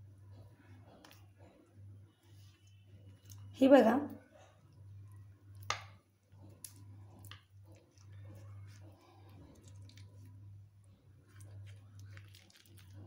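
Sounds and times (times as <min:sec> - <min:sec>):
low steady hum: 0:00.0 - 0:13.0
wet squishes of fingers folding leaf: 0:05.5 - 0:13.0.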